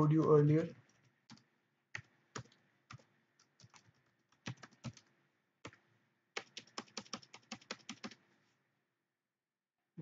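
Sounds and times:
computer keyboard typing: 0.8s - 5.8s, 6.4s - 8.2s.

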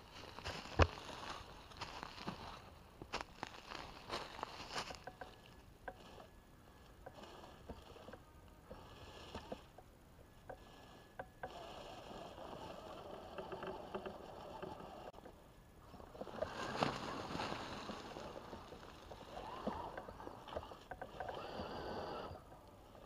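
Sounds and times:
dry leaves crunching under tires: 0.0s - 5.3s, 16.2s - 19.5s.

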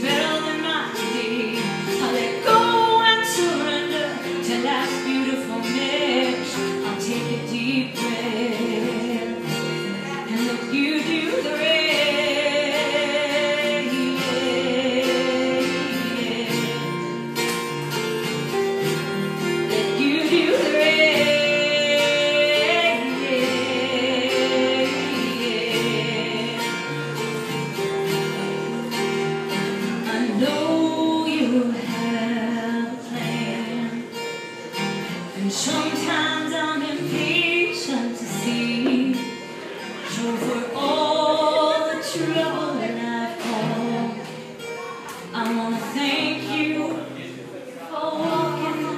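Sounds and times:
woman singing: 0.0s - 18.5s, 19.2s - 28.3s, 29.7s - 48.9s
acoustic guitars playing: 0.0s - 48.9s.

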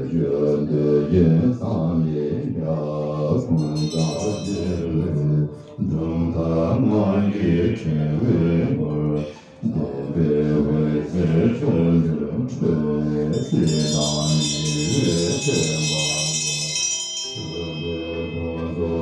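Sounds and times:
group of low voices chanting: 0.0s - 3.7s, 4.4s - 16.5s
high metallic ringing: 3.6s - 5.3s, 13.3s - 19.0s.

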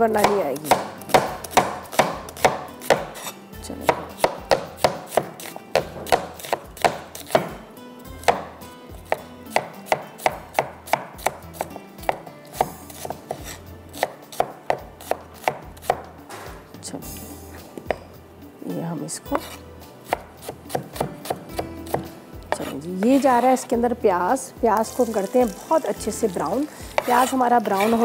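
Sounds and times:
knife chopping on cutting board: 0.1s - 7.6s, 8.2s - 16.6s, 17.8s - 18.0s, 19.3s - 23.6s, 26.9s - 28.0s.

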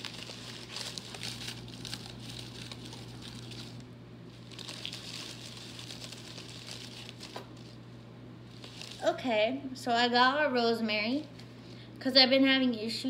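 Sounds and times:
paper rustling and crinkling: 0.0s - 7.8s, 8.5s - 9.2s.

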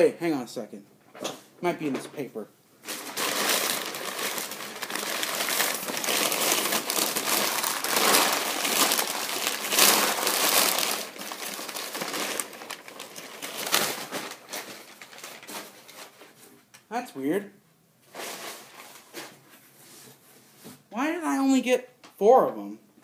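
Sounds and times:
packing paper crumpling: 2.8s - 16.4s.

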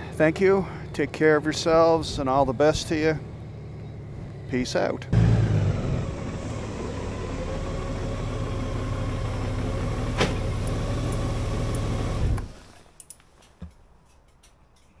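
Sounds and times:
motorcycle engine idling: 0.0s - 12.1s.

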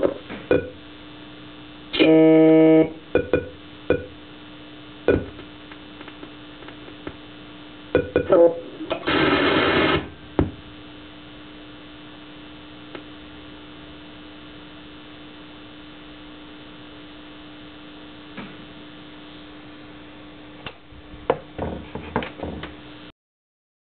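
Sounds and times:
electronic toy humming tone: 1.9s - 4.1s.

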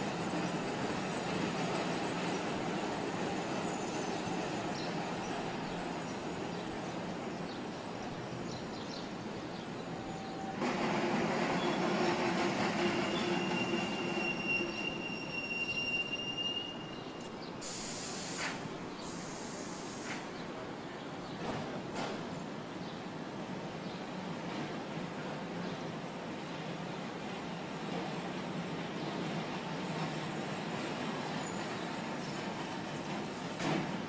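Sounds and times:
rumble of rolling streetcar: 0.0s - 34.0s
streetcar wheels squealing: 9.9s - 20.4s, 29.1s - 34.0s
short hisses: 17.6s - 20.3s.

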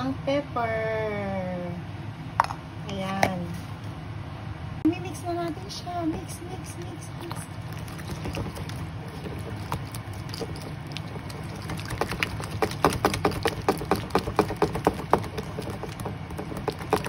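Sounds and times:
whisk scraping sauce: 6.7s - 17.0s.

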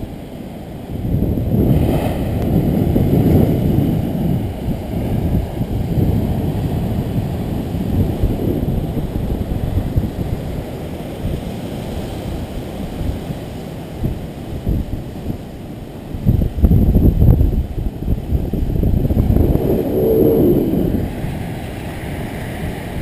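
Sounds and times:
wind buffeting microphone: 0.0s - 23.0s
surf breaking on rocks: 1.2s - 13.8s, 18.3s - 23.0s.

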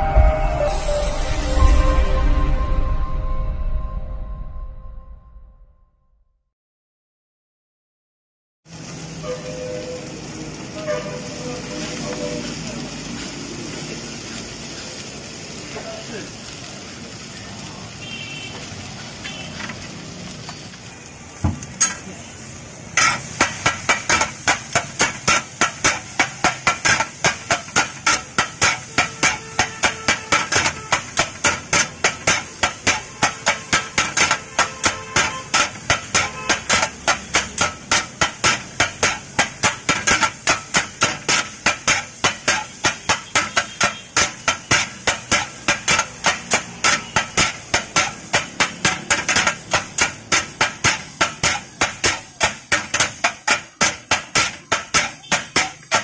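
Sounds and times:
metal spatulas clattering on griddle: 21.8s - 22.1s, 23.0s - 56.0s.

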